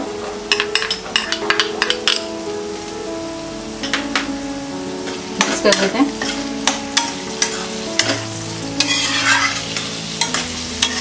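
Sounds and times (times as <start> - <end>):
potatoes sizzling in oil: 0.0 - 11.0
spatula scraping pan: 5.4 - 11.0.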